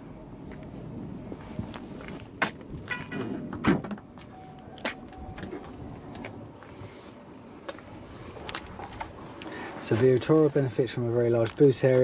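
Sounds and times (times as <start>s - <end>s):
tailgate thump and rattle: 2.9s - 4.1s.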